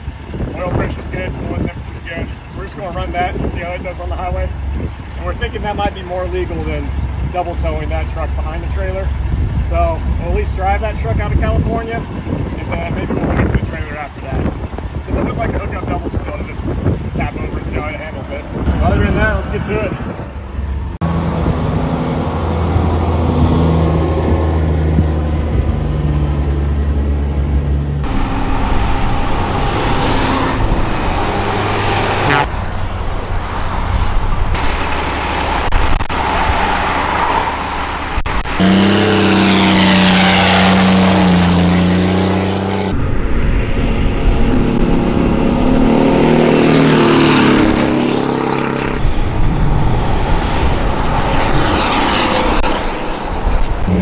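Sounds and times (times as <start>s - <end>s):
truck diesel engine under load: 17.8s - 43.1s, 50.7s - 54.0s.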